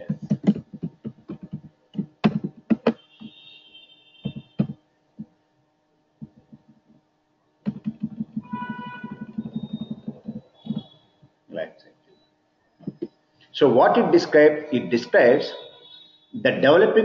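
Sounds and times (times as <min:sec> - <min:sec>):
computer keyboard typing: 0:00.0 - 0:03.0, 0:07.6 - 0:10.9
faint steady hum: 0:00.0 - 0:17.0.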